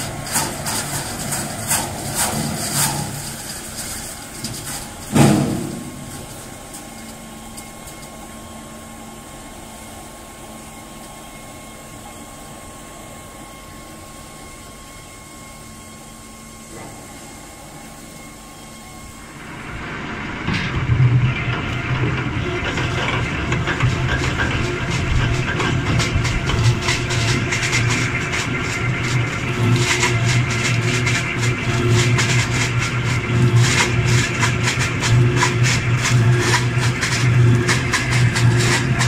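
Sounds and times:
log grinding against spiked rollers: 0.0 - 7.7, 20.4 - 39.0
machinery humming with thin whine: 0.0 - 39.0
loud mechanical knocks: 4.4 - 6.7, 20.4 - 39.0.

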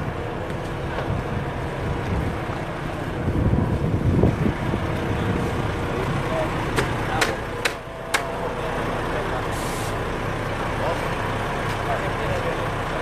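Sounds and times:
wind buffeting microphone: 0.0 - 7.0
low steady rumble: 0.0 - 13.0.

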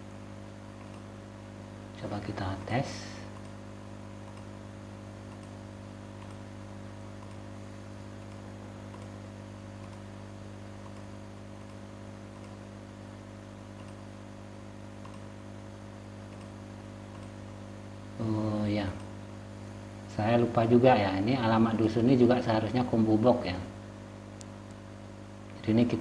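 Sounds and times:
electrical hum: 0.0 - 26.0
computer mouse clicks: 0.8 - 1.1, 3.3 - 3.6, 4.2 - 4.6, 5.3 - 5.6, 6.2 - 6.4, 7.2 - 7.5, 8.2 - 9.2, 9.8 - 10.1, 10.8 - 12.6, 13.7 - 14.1, 15.0 - 15.3, 16.2 - 17.4.

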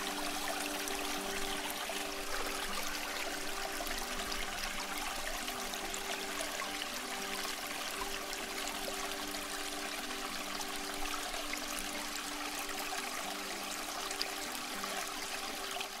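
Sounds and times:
water trickling and splashing: 0.0 - 16.0.

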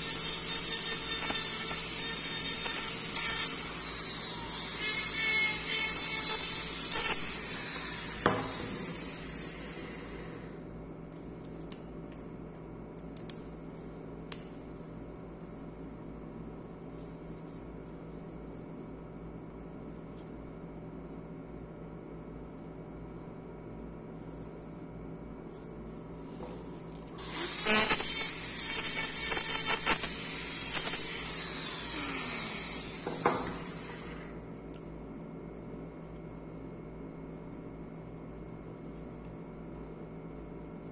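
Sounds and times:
micromotor grinding acrylic: 0.0 - 10.3, 27.2 - 34.2
motor winding down whine: 0.0 - 10.6, 27.2 - 34.4.

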